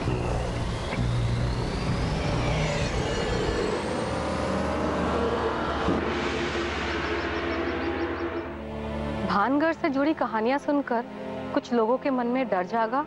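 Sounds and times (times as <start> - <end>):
bus engine driving off: 0.0 - 8.8
thin rising tone: 0.0 - 9.3.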